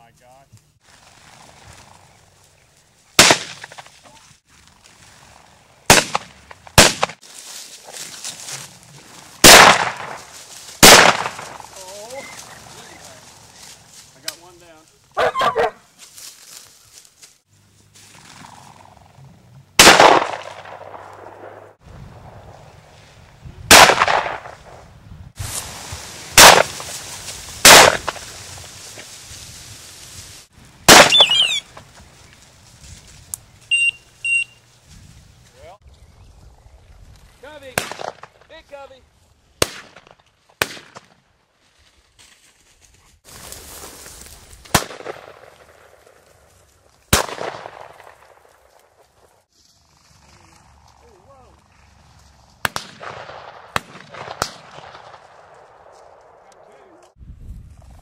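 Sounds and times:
shotgun shots with echo: 3.2 - 3.8, 5.9 - 7.2, 9.4 - 10.2, 10.8 - 11.7, 19.8 - 21.6, 23.7 - 24.6, 26.4 - 26.8, 27.6 - 28.2, 30.9 - 31.6, 37.8 - 38.3, 39.6 - 41.1, 44.7 - 45.5, 47.1 - 48.3, 52.6 - 55.2.

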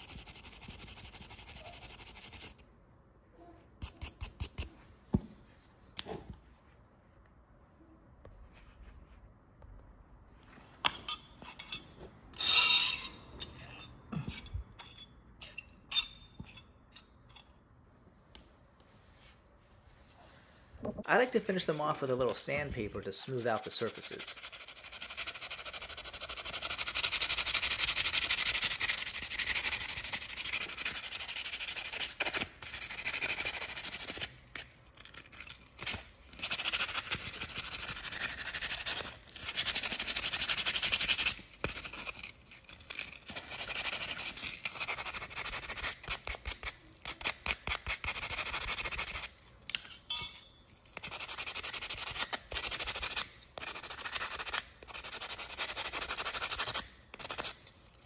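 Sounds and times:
sandpaper rubbing on metal: 0.0 - 2.6, 22.9 - 34.3, 35.4 - 49.3, 51.0 - 57.6.

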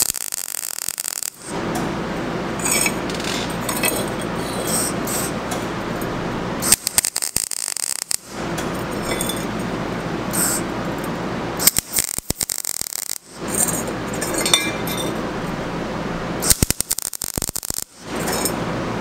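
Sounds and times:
sharp pops of welding arc: 0.0 - 1.6, 6.6 - 8.7, 11.6 - 13.4, 16.4 - 18.1
welding arc crackling: 0.0 - 14.5, 15.2 - 18.6.

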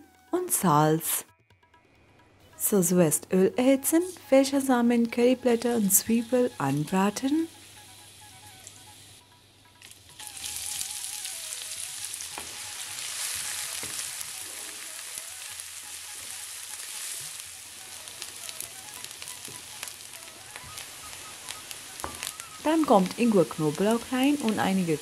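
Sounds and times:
onions sizzling in hot oil: 3.6 - 25.0.

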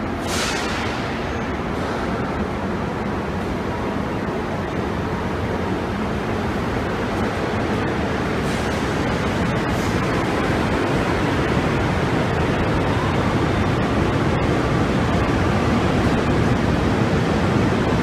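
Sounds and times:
metro train running: 0.0 - 18.0.

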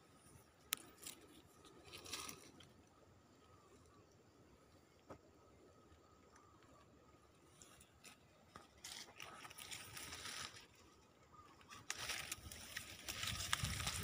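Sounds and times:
footsteps crunching dry branches: 8.0 - 11.0, 11.6 - 14.0.

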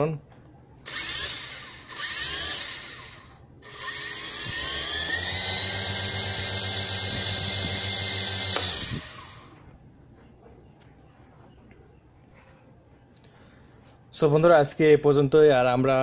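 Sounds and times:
toy helicopter motor whine: 0.9 - 9.6.

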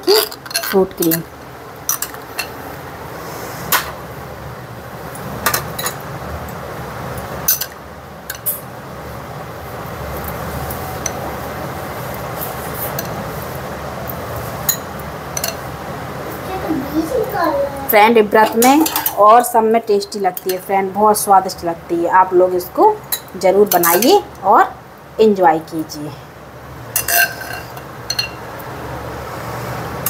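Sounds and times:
steady background noise: 0.0 - 30.0
spoon clinking against glass bowls: 27.0 - 28.4.

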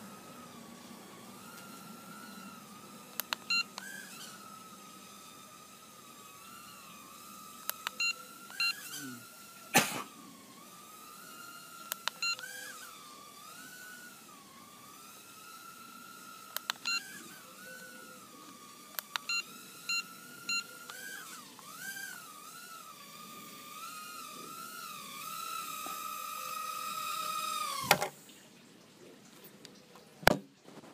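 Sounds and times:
small drone motors whining: 0.0 - 28.4.

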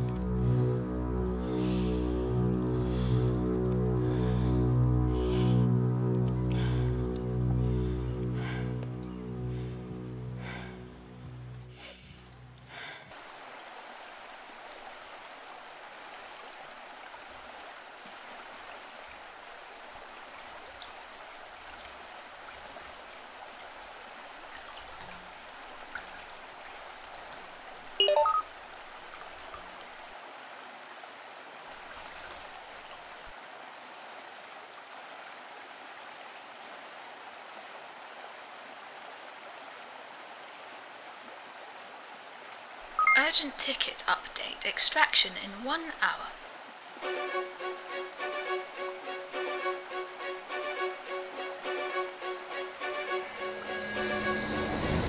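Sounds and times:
stream flowing over rocks: 0.0 - 55.0.

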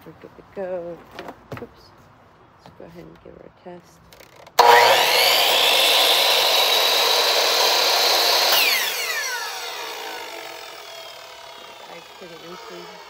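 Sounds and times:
miter saw whining: 4.6 - 13.0.

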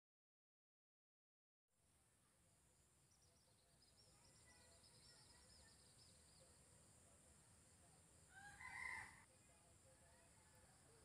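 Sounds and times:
small bird chirping: 3.0 - 6.6
rooster crowing: 8.3 - 9.2.

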